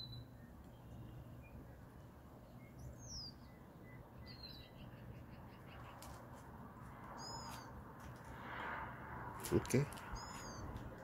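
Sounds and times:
faint bird chirps: 0.0s - 6.2s, 7.2s - 7.8s, 10.0s - 10.8s.

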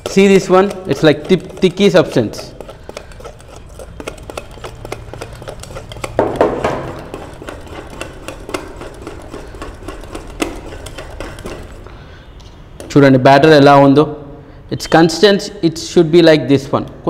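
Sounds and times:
whisk clanking on bowl: 0.0s - 11.9s
wire whisk beating batter in metal bowl: 0.0s - 11.9s.

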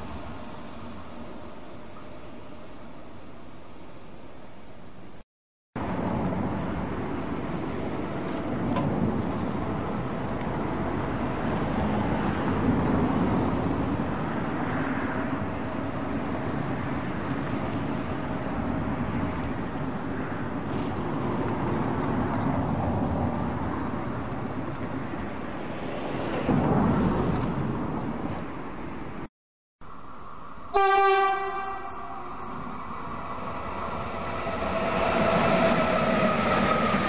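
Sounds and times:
outdoor ambience: 0.0s - 5.2s, 5.8s - 37.0s
distant train running: 29.9s - 37.0s.

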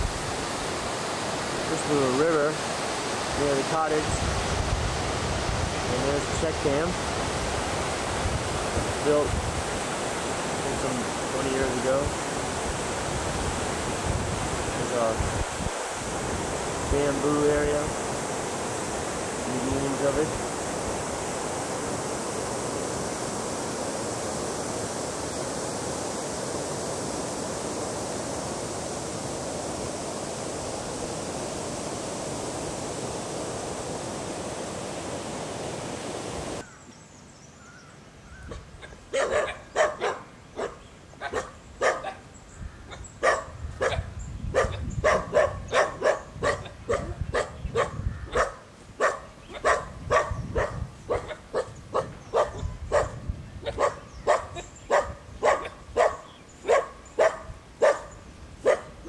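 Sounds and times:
rushing water: 0.0s - 37.0s, 37.9s - 59.0s
dog barking: 38.5s - 42.2s, 42.9s - 59.0s.

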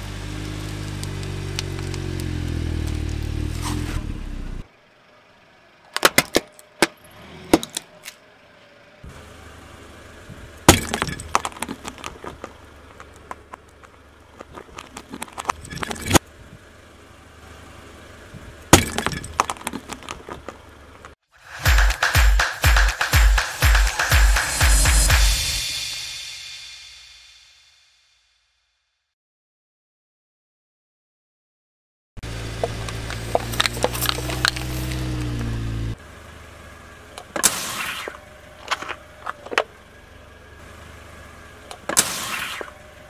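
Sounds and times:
foam crackling: 0.0s - 4.0s, 32.3s - 35.8s
car engine running: 0.0s - 26.0s, 32.2s - 43.0s
clay shattering under tyre: 10.6s - 13.6s, 18.7s - 20.6s.

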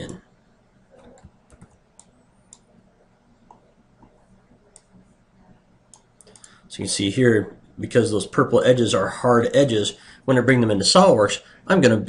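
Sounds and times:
low steady hum: 0.0s - 12.0s
mouse and keyboard clicks: 1.0s - 2.7s.

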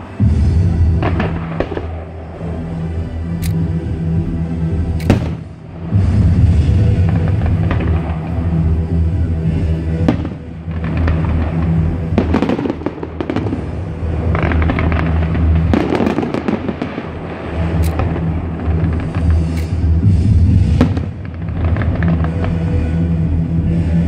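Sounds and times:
fireworks crackling bursts: 0.0s - 2.8s, 5.0s - 24.0s
music playing: 0.0s - 24.0s.

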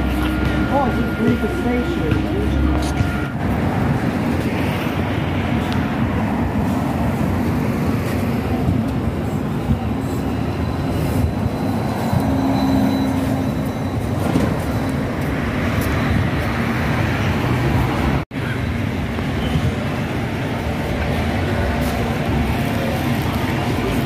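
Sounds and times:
bus motor and road rumble: 0.0s - 24.0s.

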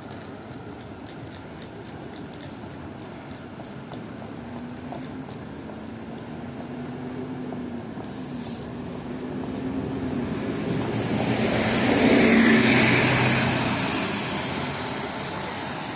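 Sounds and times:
street traffic: 0.0s - 15.9s
vehicle passing close by: 8.7s - 15.9s.

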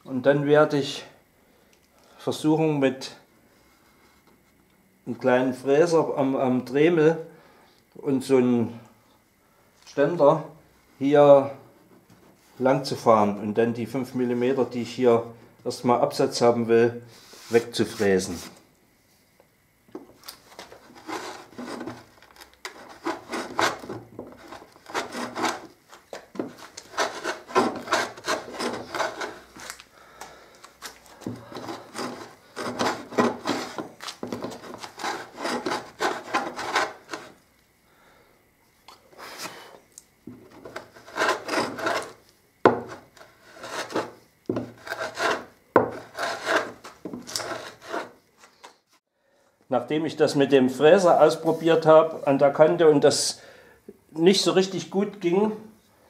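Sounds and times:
hand plane scraping wood: 20.6s - 29.7s, 31.1s - 37.4s, 40.5s - 48.2s.

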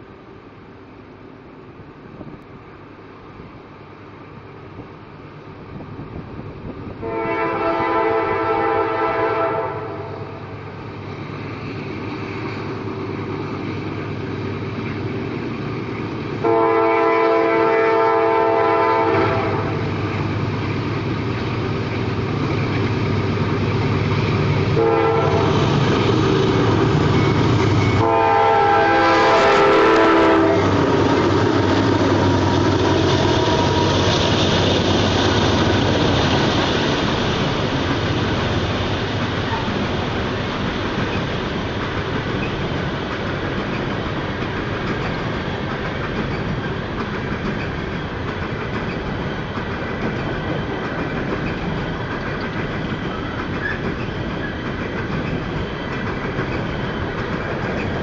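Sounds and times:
locomotives rumbling past: 5.8s - 58.0s
train wheels clattering on rails: 6.6s - 58.0s
locomotive air horn blowing: 7.0s - 10.4s, 16.4s - 19.9s, 24.8s - 25.7s, 28.0s - 34.1s.

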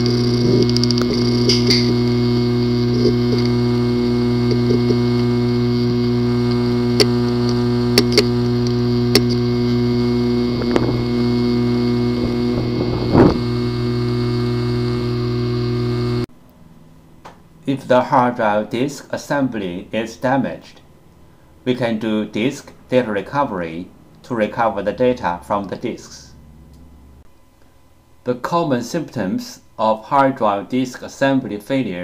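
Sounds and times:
hard disk clicking: 0.0s - 16.2s
steady hum: 0.0s - 30.8s.

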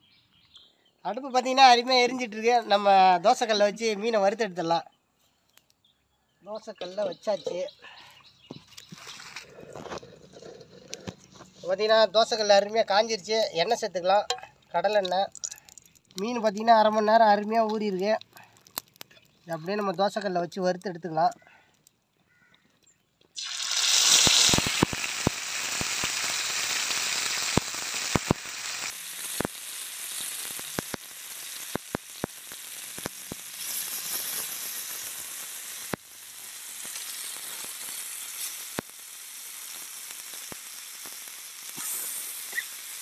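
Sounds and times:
oil popping and spitting: 14.3s - 16.3s, 18.2s - 19.4s, 23.4s - 43.0s
fish sizzling in oil: 23.4s - 43.0s.

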